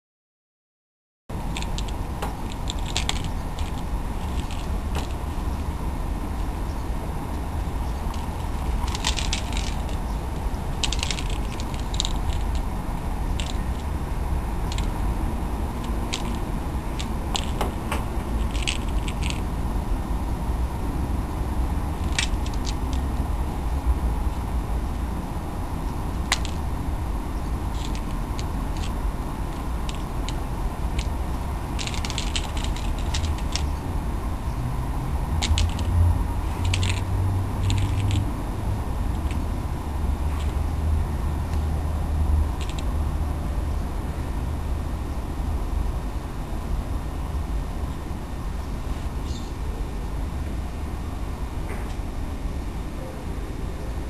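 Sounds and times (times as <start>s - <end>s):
steady low rumble: 1.3s - 54.0s
toy mouse clicking and scraping on stone: 1.5s - 5.7s, 7.6s - 19.6s, 21.8s - 23.3s, 26.0s - 33.9s, 35.3s - 38.3s, 39.1s - 39.5s, 40.3s - 40.6s, 42.5s - 43.0s.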